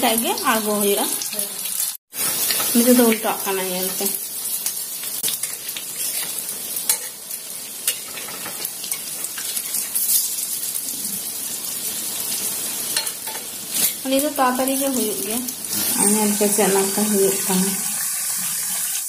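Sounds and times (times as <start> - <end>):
food sizzling in hot oil: 0.0 - 19.0
spatula clicking and scraping pan: 2.2 - 3.0, 4.6 - 7.2, 7.8 - 10.3, 12.9 - 14.0.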